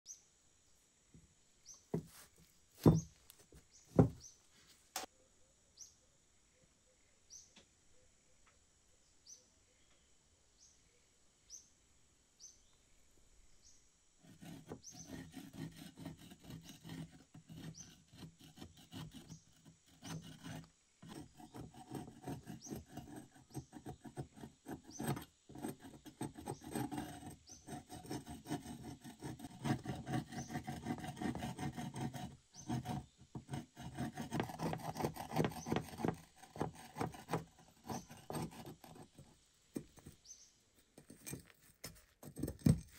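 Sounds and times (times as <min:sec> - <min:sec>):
blade scraping rust off iron: 0:14.3 - 0:40.2.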